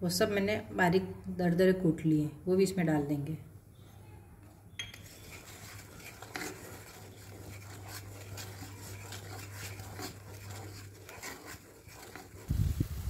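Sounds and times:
wooden spatula scraping pan: 5.0s - 13.0s.

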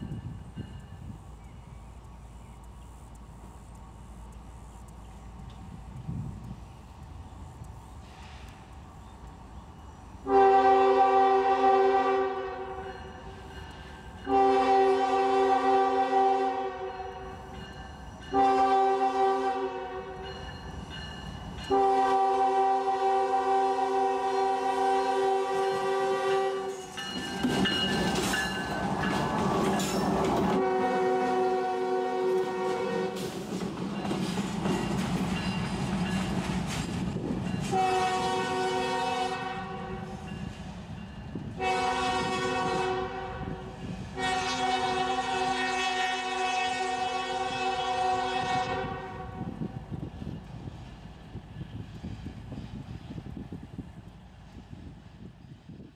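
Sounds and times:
locomotive air horn blasts: 10.2s - 12.9s, 14.3s - 17.2s, 18.3s - 20.3s, 21.7s - 26.8s, 30.6s - 33.3s, 37.7s - 40.2s, 41.6s - 49.6s
train wheel clatter: 26.7s - 30.6s, 32.4s - 38.6s.

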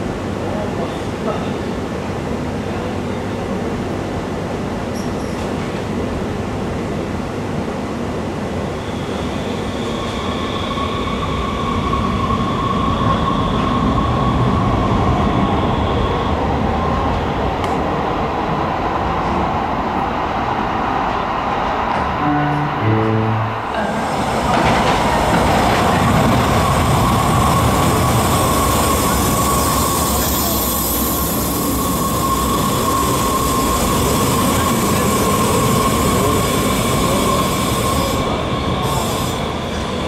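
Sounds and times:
light-rail train rumbling: 0.0s - 40.0s
train wheel squeal: 8.6s - 16.9s, 26.1s - 40.0s.

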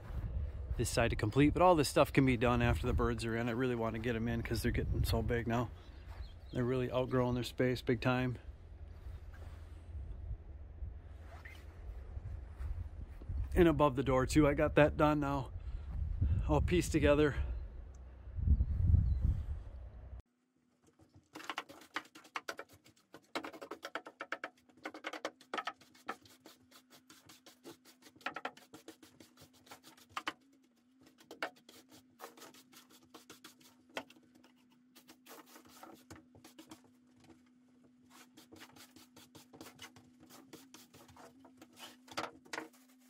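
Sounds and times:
broom sweeping wooden floor: 25.5s - 30.4s, 31.1s - 36.9s, 38.1s - 43.0s.

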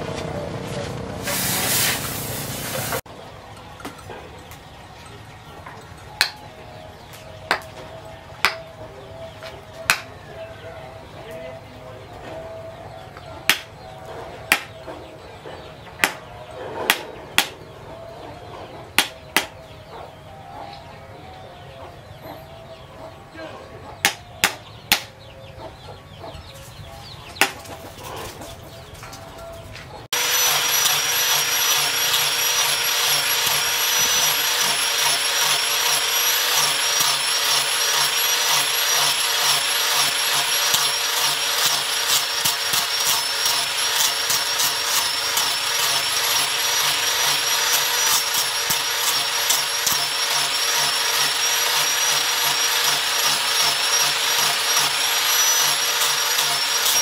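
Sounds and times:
angle grinder sanding steel: 30.1s - 57.0s.

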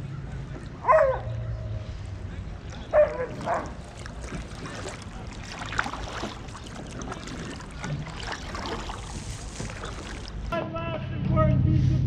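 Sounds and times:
paddle splashing in water: 2.5s - 10.5s.

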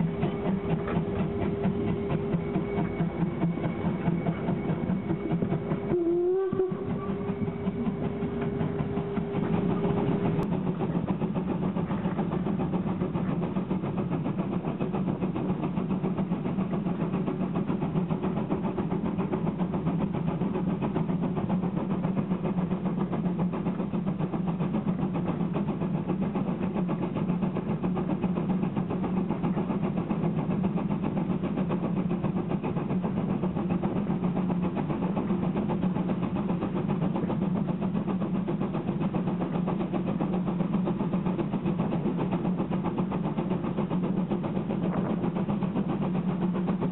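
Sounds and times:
steam train rumbling: 0.0s - 46.9s
train whistle: 5.2s - 9.4s.

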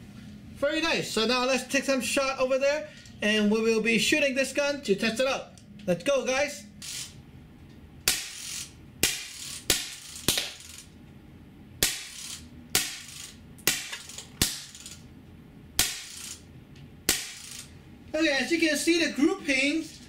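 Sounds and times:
air gun shots: 8.1s - 8.4s, 9.0s - 10.6s, 11.8s - 12.2s, 12.8s - 14.8s, 15.8s - 16.2s, 17.1s - 17.6s.

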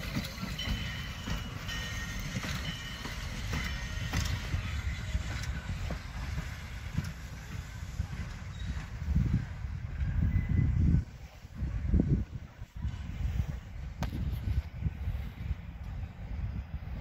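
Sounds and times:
wheels clicking over rail joints: 0.0s - 10.4s
faint high wheel squeals: 0.0s - 11.3s
train coaches rumbling: 0.0s - 17.0s.

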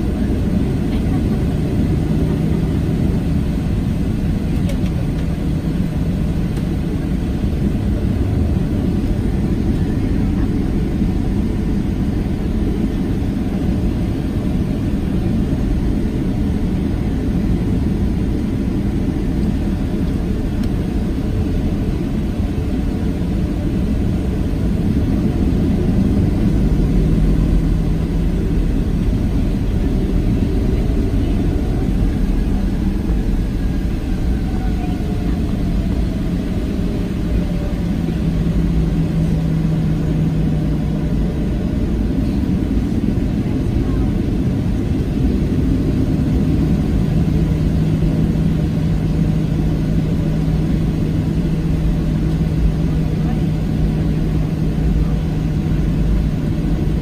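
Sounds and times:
airplane cabin engine rumble: 0.0s - 57.0s.

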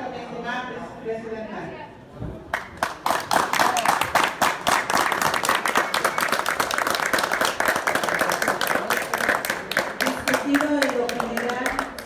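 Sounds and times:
audience applause: 2.5s - 12.0s.

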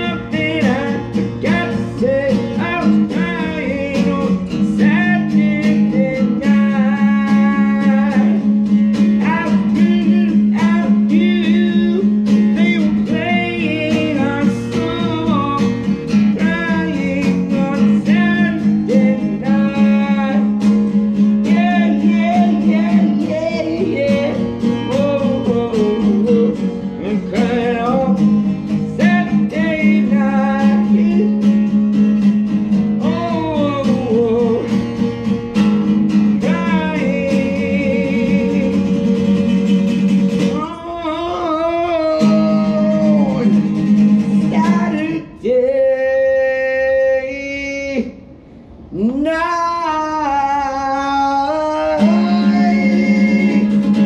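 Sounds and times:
man singing: 0.0s - 48.2s, 48.9s - 54.0s
strummed acoustic guitar: 0.0s - 48.2s, 50.2s - 54.0s.

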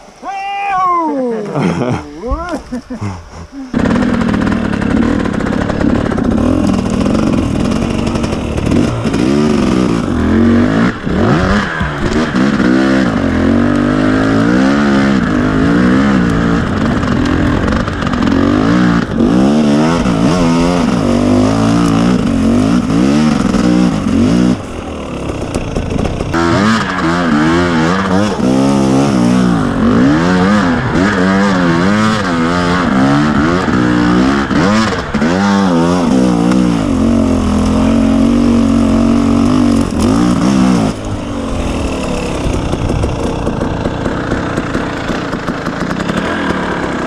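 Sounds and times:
dirt bike engine revving: 1.6s - 47.0s.

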